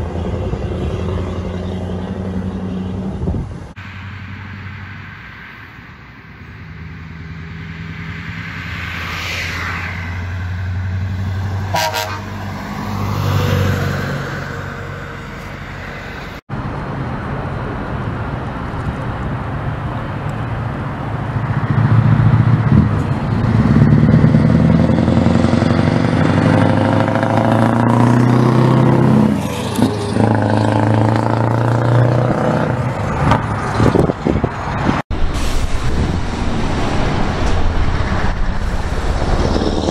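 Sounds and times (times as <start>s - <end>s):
truck engine rumbling past: 6.5s - 39.9s
truck horn toot: 11.6s - 12.4s.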